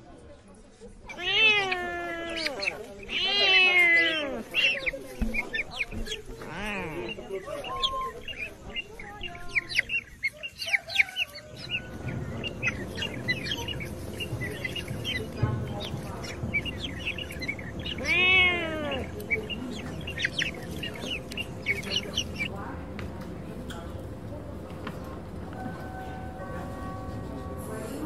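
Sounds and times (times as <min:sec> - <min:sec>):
birds chirping: 0:01.1 - 0:28.0
chicken clucking: 0:01.7 - 0:22.7.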